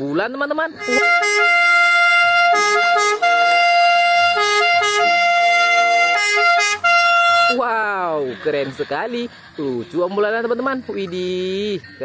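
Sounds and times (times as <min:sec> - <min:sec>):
ambulance two-tone siren: 0:00.8 - 0:07.6.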